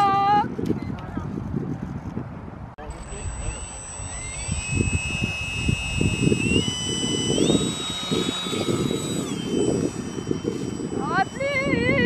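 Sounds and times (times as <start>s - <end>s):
gusty low rush: 0.2s - 12.0s
electric motor propeller whine: 2.8s - 12.0s.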